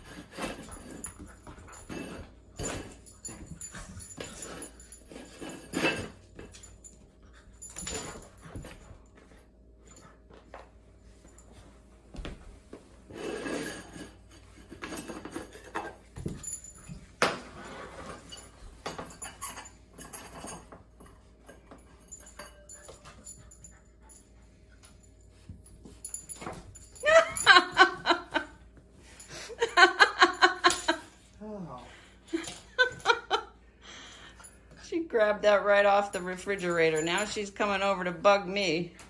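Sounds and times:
puppy scuffling on tile floor: 0:00.0 - 0:29.6
person laughing: 0:27.0 - 0:28.5, 0:29.4 - 0:31.1.

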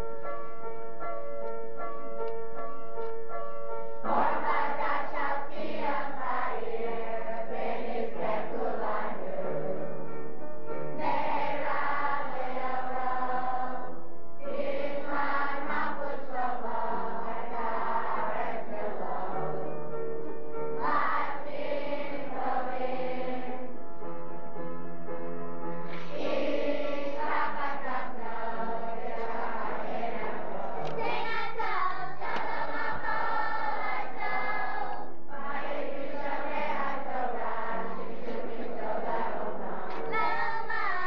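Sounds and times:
group singing in chorus: 0:04.0 - 0:09.9, 0:11.0 - 0:19.7, 0:20.8 - 0:23.8, 0:25.9 - 0:41.0.

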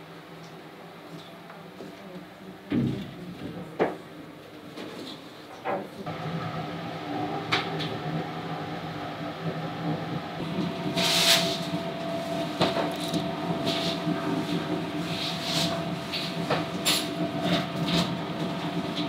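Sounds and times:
machine humming: 0:06.1 - 0:19.0.

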